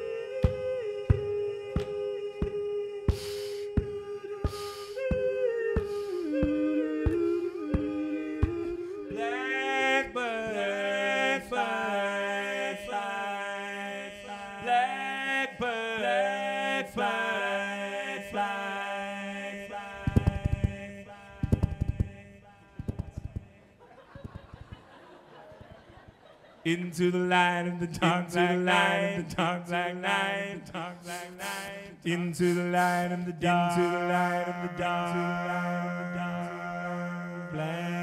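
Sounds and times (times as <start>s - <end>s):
looped vocal beat: 0.0s - 9.4s
harmonised voice layers: 0.0s - 38.0s
low percussive thumps: 0.4s - 8.8s, 20.0s - 23.6s.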